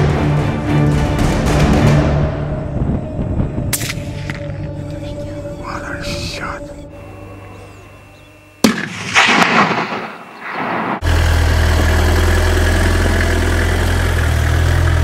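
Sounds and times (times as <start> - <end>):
vehicle engine humming: 0.0 - 8.9, 9.6 - 15.0
rifle shot echoing: 8.6 - 11.0.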